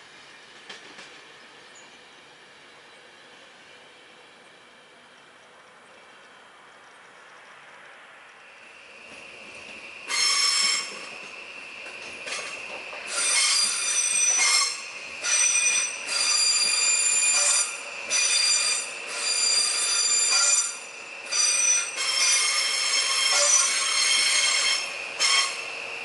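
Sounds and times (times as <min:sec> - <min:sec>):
train wheels squealing on rails: 0:08.4 - 0:26.0.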